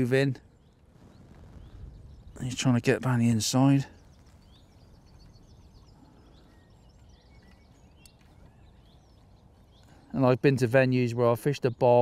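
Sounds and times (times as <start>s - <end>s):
outdoor background noise: 0.0s - 12.0s
songbird chirps and trills: 0.0s - 12.0s.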